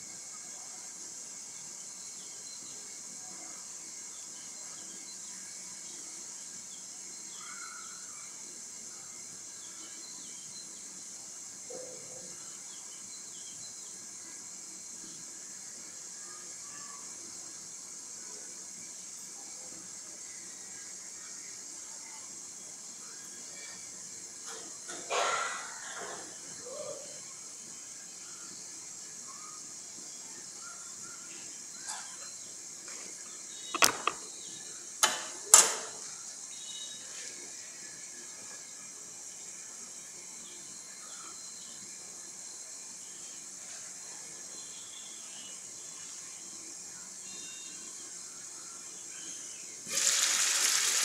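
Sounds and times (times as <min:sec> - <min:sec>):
pan frying hiss: 0:00.0 - 0:11.7, 0:12.3 - 0:51.0
food sizzling in a covered pot: 0:00.0 - 0:51.0
faint bird chirps: 0:01.8 - 0:14.4, 0:26.5 - 0:32.6, 0:36.5 - 0:38.5, 0:47.1 - 0:49.8
sharp clinks and knocks: 0:33.8 - 0:34.3.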